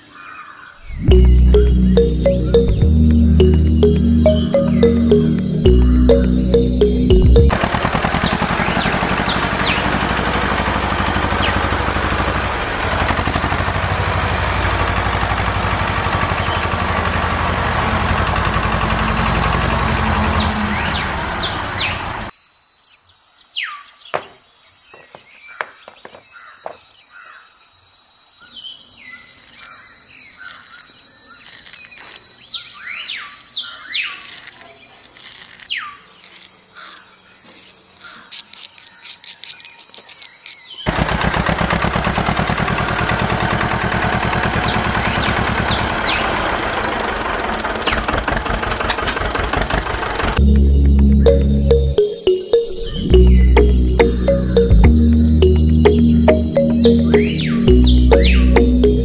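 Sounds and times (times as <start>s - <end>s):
birds chirping: 18.6s - 22.3s, 51.0s - 59.0s.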